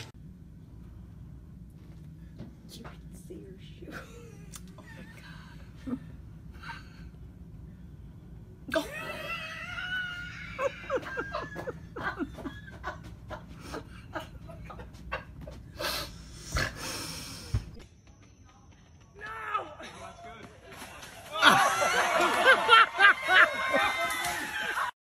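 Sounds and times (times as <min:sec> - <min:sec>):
steady low hum: 0:00.0 - 0:23.1
person laughing hard: 0:08.7 - 0:15.8.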